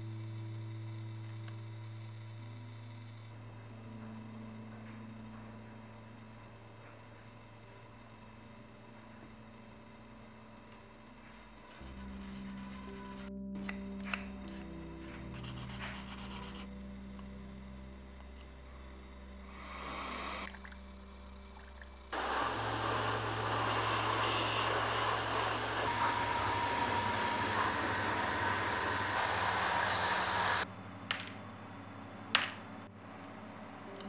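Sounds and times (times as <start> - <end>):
low hum: 0.0 - 34.0
airbrush spraying hiss: 19.5 - 20.5, 22.2 - 30.6.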